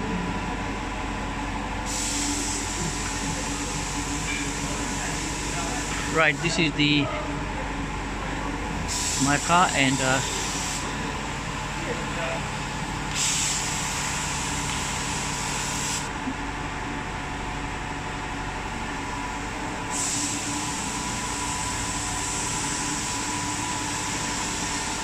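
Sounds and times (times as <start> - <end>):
workshop machinery humming: 0.0 - 25.0
compressed air hiss: 1.8 - 6.6, 8.9 - 11.0, 13.1 - 16.1, 19.9 - 25.0.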